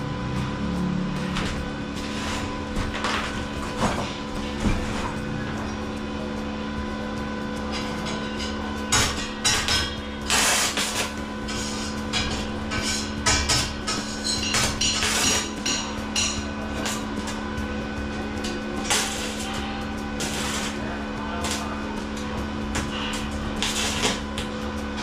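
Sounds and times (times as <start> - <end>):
steady hum: 0.0 - 25.0
hammer strikes and clanks: 7.7 - 17.4.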